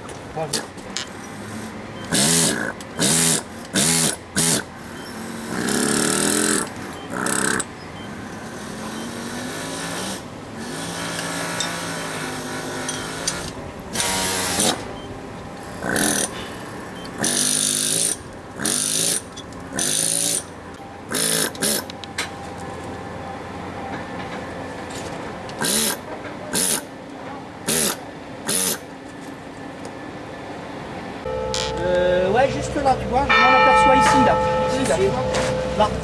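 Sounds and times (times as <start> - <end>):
pneumatic hammer chiselling stone: 0.5 - 4.7, 5.3 - 7.7, 8.6 - 14.8, 15.7 - 16.4, 17.2 - 20.5, 21.1 - 21.9, 25.6 - 26.9, 27.7 - 28.8.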